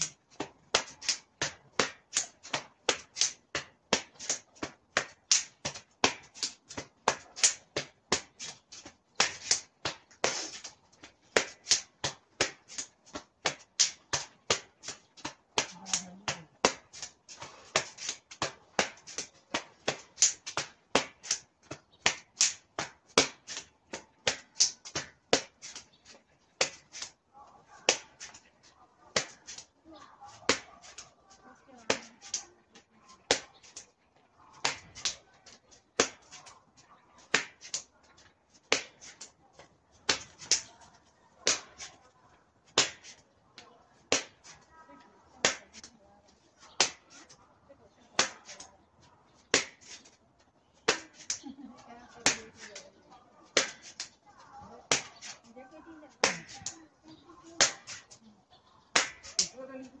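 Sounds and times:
hands slapping against body: 0:00.7 - 0:27.2, 0:37.2 - 0:40.7, 0:42.7 - 0:44.6, 0:45.4 - 0:45.9, 0:46.6 - 0:47.4, 0:48.2 - 0:48.7, 0:49.4 - 0:50.2, 0:50.8 - 0:51.5, 0:52.2 - 0:52.8, 0:53.4 - 0:54.2, 0:54.9 - 0:55.4, 0:56.1 - 0:56.8, 0:57.6 - 0:58.2, 0:58.8 - 0:59.5.

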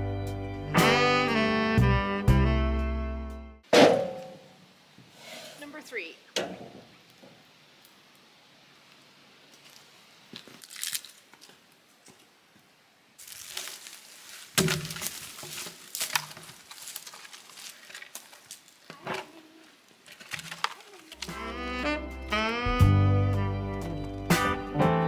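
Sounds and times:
twigs crackling and snapping: 0:08.9 - 0:12.3, 0:13.2 - 0:21.4
log thudding on ground: 0:13.4 - 0:19.2.

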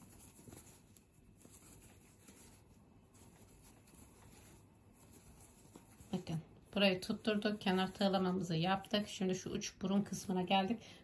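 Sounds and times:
crochet hook pulling yarn: 0:00.0 - 0:08.3.

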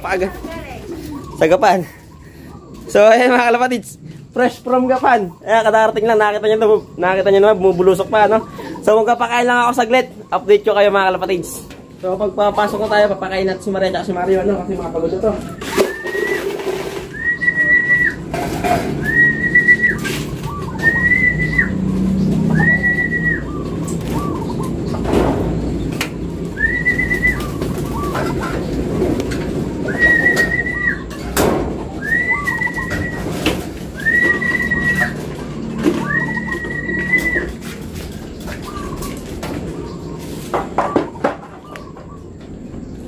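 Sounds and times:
pigeons cooing: 0:00.0 - 0:43.0
person whistling flat note: 0:17.1 - 0:18.2.

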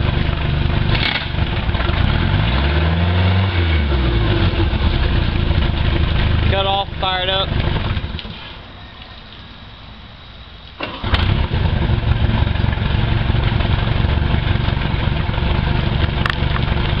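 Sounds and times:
boat engine idling: 0:00.0 - 0:02.2, 0:04.1 - 0:17.0
quiet low rumble: 0:03.8 - 0:17.0.

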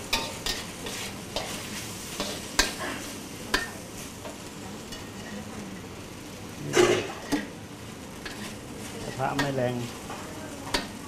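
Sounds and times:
food sizzling in a wok: 0:00.0 - 0:11.0
metal spatula scraping pan: 0:08.2 - 0:10.0.

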